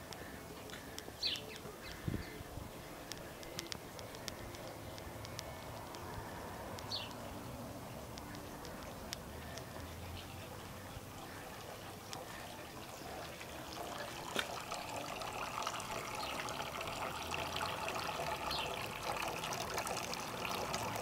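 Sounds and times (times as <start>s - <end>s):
fountain water trickling: 0.0s - 21.0s.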